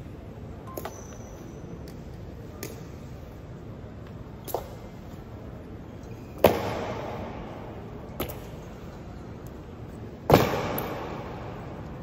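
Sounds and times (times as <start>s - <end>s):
loud sharp knocks echoing: 10.3s - 11.6s.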